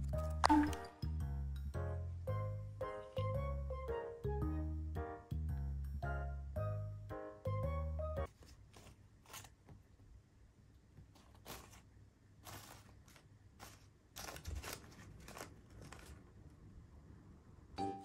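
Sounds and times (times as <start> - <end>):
paper crinkling and rustling: 8.3 - 9.7, 11.1 - 16.4.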